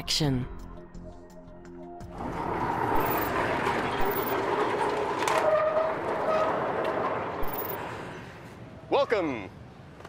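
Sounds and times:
sliding gate rumbling scrape: 2.0s - 8.4s
gate squealing: 2.1s - 8.2s.

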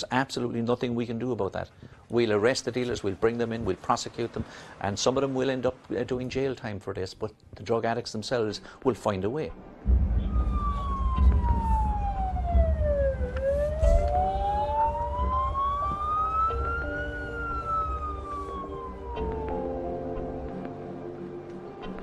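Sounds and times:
low rumble: 9.6s - 20.8s
police siren wailing: 9.9s - 20.4s
steady music notes: 9.9s - 22.0s.

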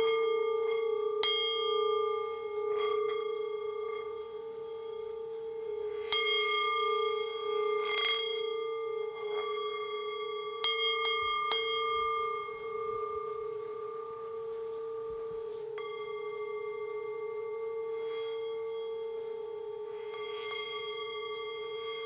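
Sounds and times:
struck metal bell tone: 0.0s - 22.0s.

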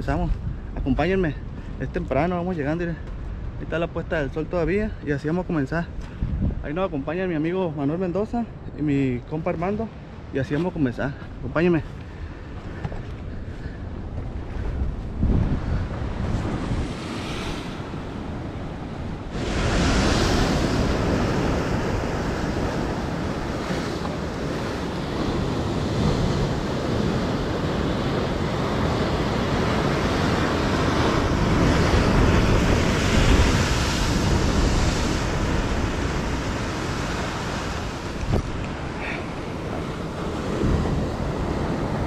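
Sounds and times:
wind on microphone: 0.0s - 7.4s, 11.2s - 42.0s
ocean surf breaking over rocks: 8.8s - 42.0s.

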